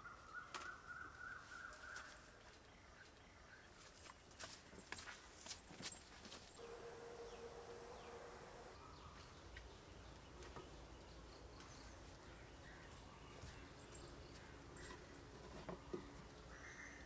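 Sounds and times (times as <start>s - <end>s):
high-pitched insect drone: 6.6s - 8.8s
low insect buzz: 6.6s - 8.8s.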